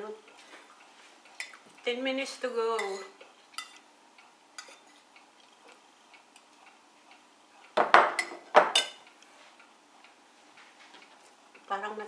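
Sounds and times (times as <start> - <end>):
fork clicking on a ceramic plate: 3.6 - 3.8
crockery knocking on a desk: 7.8 - 8.8.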